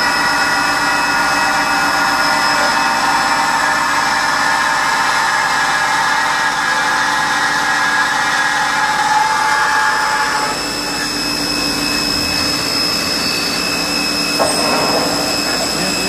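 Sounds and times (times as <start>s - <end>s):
machine mechanical whine: 0.0s - 16.0s
machine clack: 14.4s - 16.0s.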